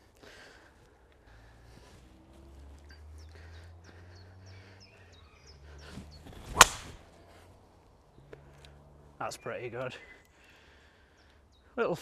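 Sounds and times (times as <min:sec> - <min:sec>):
small birds chirping: 0:00.0 - 0:12.0
golf ball struck crack: 0:06.4 - 0:07.1.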